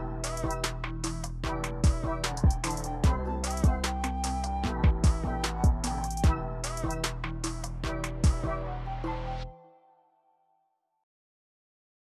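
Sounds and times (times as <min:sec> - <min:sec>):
electronic beat music: 0:00.0 - 0:09.5.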